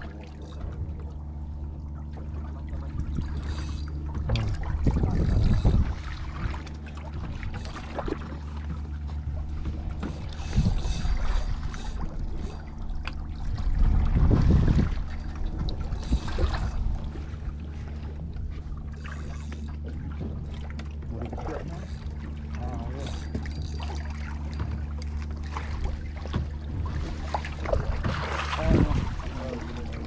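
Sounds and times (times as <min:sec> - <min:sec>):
outboard engine idling: 0:00.0 - 0:30.0
water rushing: 0:26.8 - 0:30.0.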